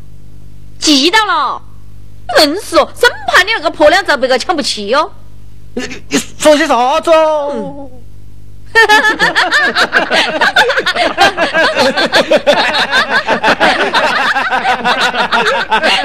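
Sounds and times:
people laughing: 0:08.7 - 0:16.0.

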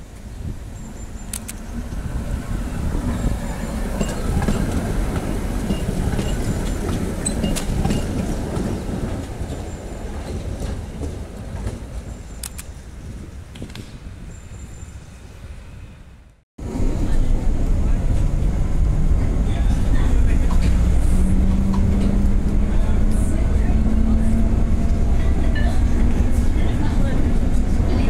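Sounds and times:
tram running on rails: 0:00.0 - 0:28.0
wheels clicking over rail joints: 0:03.0 - 0:12.8.

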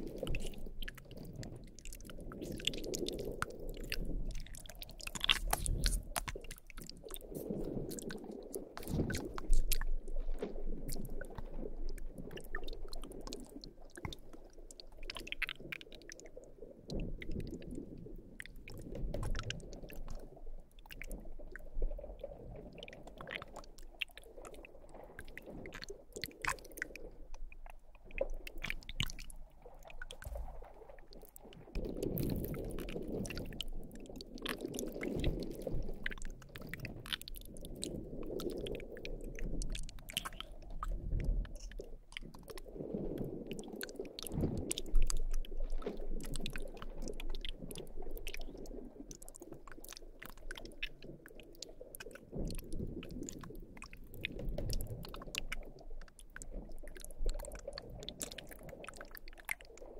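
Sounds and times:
slime squelching: 0:00.0 - 0:10.0, 0:39.5 - 0:42.7.

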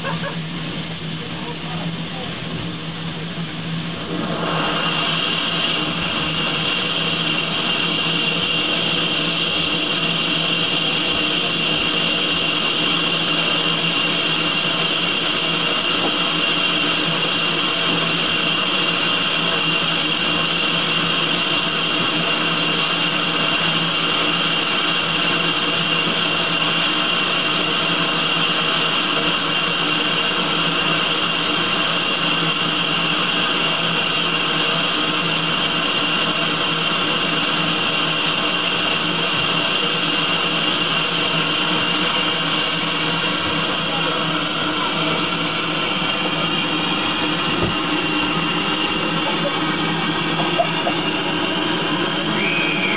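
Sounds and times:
steam hissing from locomotive: 0:00.0 - 0:52.9
high whistling tone: 0:51.9 - 0:52.9.

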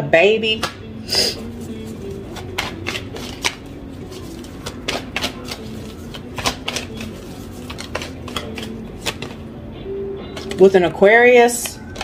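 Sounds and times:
cards being shuffled: 0:01.4 - 0:09.4, 0:10.3 - 0:10.6.

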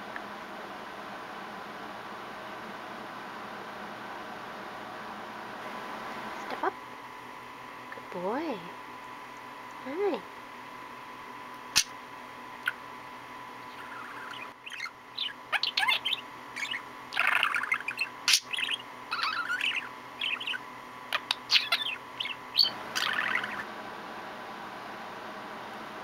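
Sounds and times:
budgerigar chattering: 0:13.7 - 0:20.6, 0:21.2 - 0:23.6.

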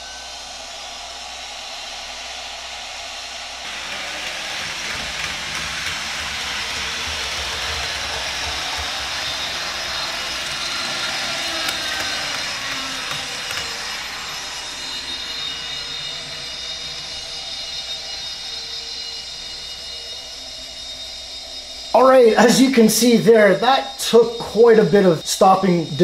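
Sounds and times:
gas-turbine sound from small speaker: 0:00.0 - 0:26.0
model train rolling on track: 0:03.6 - 0:20.6.

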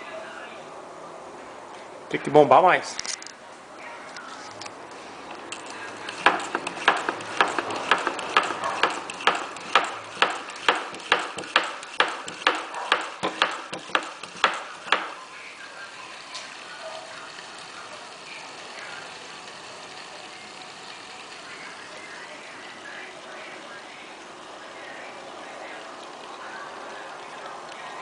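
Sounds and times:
hand pump clicking: 0:05.5 - 0:15.1.

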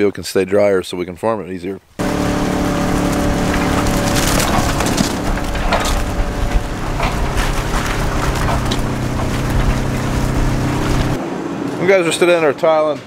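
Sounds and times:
engine running steadily: 0:02.0 - 0:11.2
rattling and crackling: 0:02.0 - 0:11.2.

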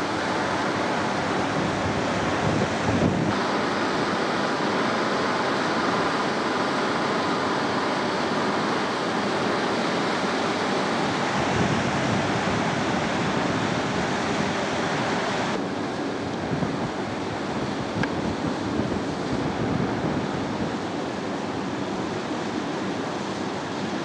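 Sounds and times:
wind noise on microphone: 0:00.0 - 0:03.5, 0:10.8 - 0:22.6
floodwater rushing: 0:00.0 - 0:24.0.

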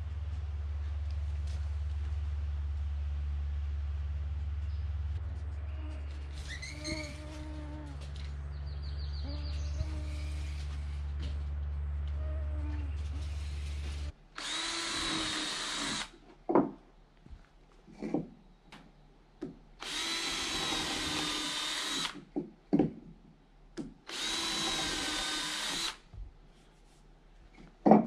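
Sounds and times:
cordless drill whining into wood: 0:13.2 - 0:16.2, 0:19.8 - 0:22.2, 0:24.1 - 0:26.0.

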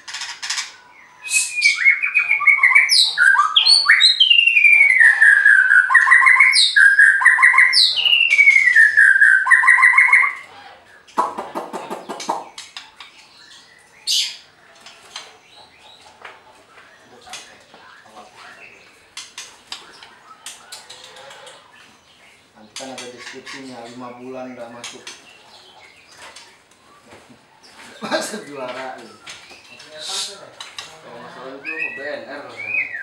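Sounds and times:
low rattling call: 0:00.0 - 0:33.0
bird singing whistled song: 0:01.1 - 0:10.4, 0:31.6 - 0:33.0.

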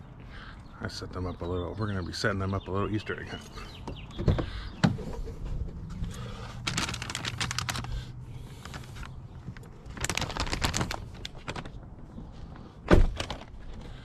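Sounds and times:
plastic bag crinkling and clicking: 0:06.6 - 0:08.0, 0:08.6 - 0:11.8.

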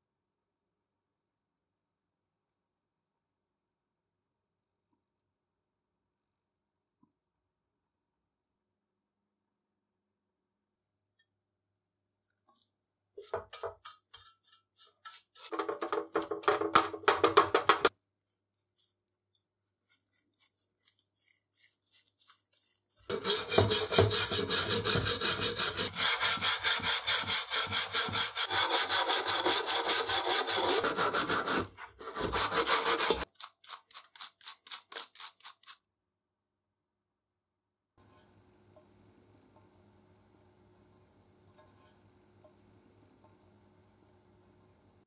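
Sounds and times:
metal scraper scraping paint: 0:13.2 - 0:16.3, 0:19.8 - 0:35.8.

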